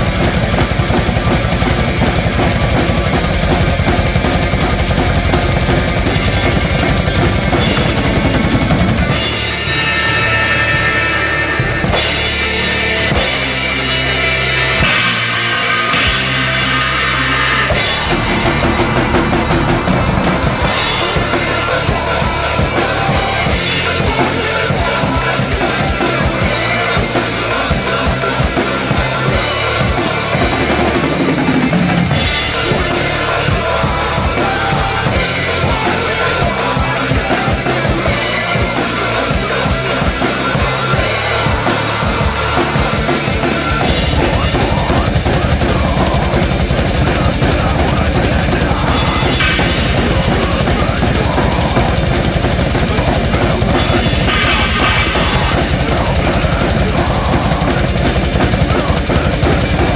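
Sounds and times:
drum kit played hard: 0.0s - 59.9s
fast kick drum pulse: 17.7s - 38.8s, 39.4s - 59.9s.

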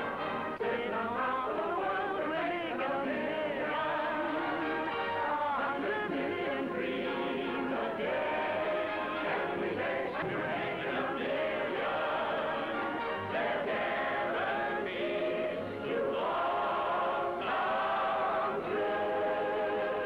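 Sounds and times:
choir singing with accompaniment: 0.0s - 20.0s.

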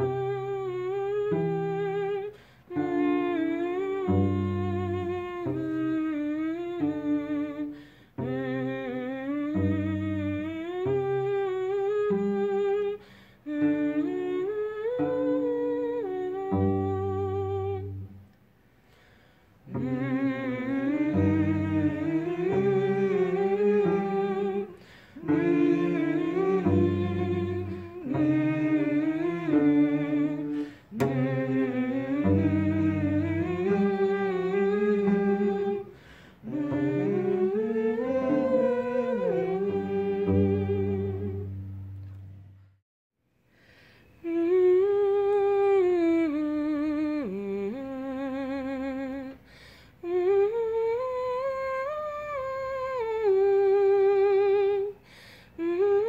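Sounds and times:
person humming a slow melody: 0.0s - 18.3s, 19.6s - 42.7s, 44.2s - 56.0s
low sustained accompaniment notes: 19.7s - 30.6s, 31.2s - 42.7s.

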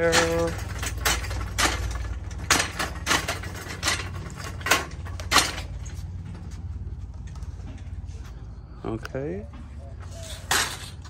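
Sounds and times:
shopping cart wheels clacking: 0.0s - 6.6s
low rumble of cart: 0.0s - 11.0s.

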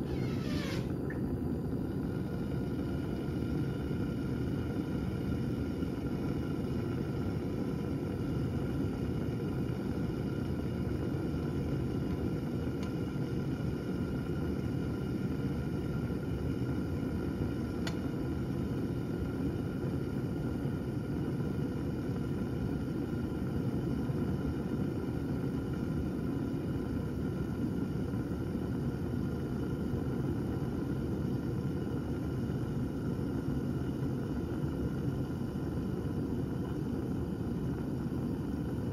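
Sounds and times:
low rumble of heating water: 0.0s - 38.9s
faint click: 17.8s - 18.0s.

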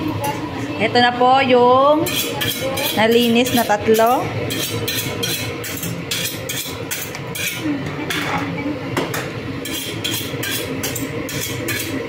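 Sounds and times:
knife scraping fish: 2.1s - 3.2s, 3.9s - 7.6s, 9.6s - 12.0s.

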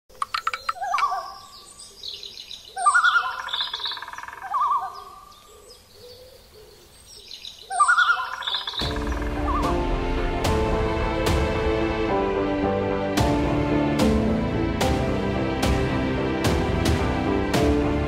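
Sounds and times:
warbling bird call: 0.2s - 1.8s, 2.7s - 6.9s, 7.6s - 9.9s
high bird chirps: 0.2s - 6.2s, 7.2s - 9.7s.

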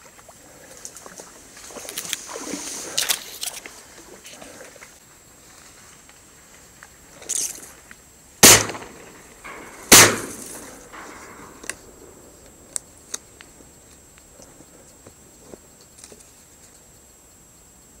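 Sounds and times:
shotgun shots: 8.4s - 12.7s.

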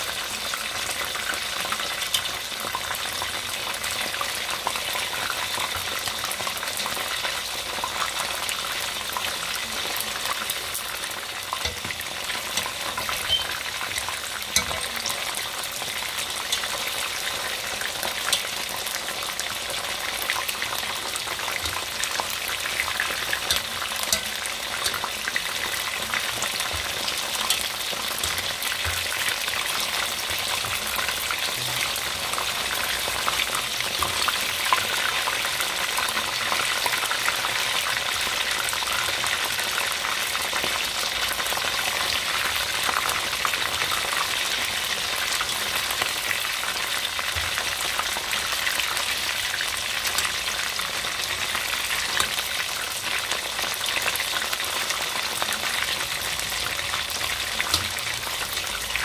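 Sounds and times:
chicken deep-frying in oil: 0.0s - 59.0s
wire utensil stirring in oil: 10.3s - 35.6s.

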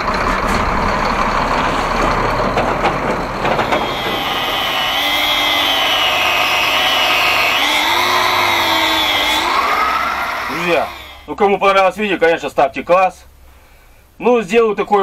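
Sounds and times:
even rumbling noise: 0.0s - 12.9s
angle grinder cutting rubber: 3.4s - 11.3s.

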